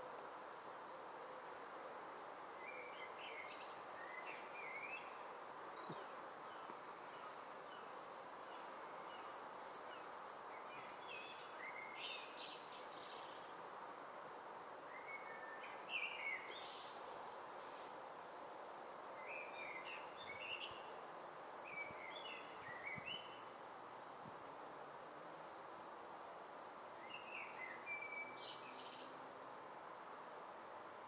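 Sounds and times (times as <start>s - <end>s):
steady background hiss: 0.0s - 31.0s
small birds chirping: 2.6s - 13.6s.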